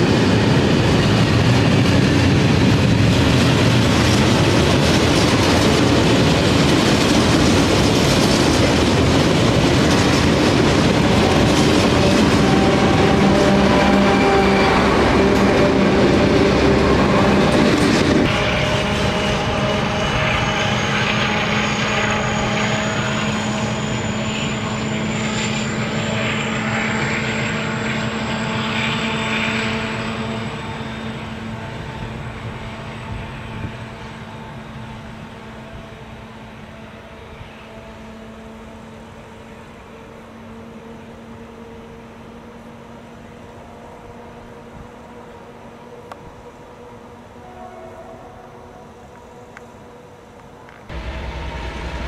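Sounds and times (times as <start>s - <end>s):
diesel locomotive engine drone: 0.0s - 52.0s
turbocharger whine: 10.8s - 35.4s, 50.9s - 52.0s.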